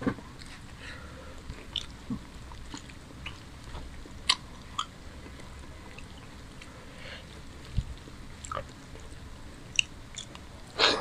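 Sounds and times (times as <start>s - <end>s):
wet chewing and eating by hand: 0.2s - 11.0s.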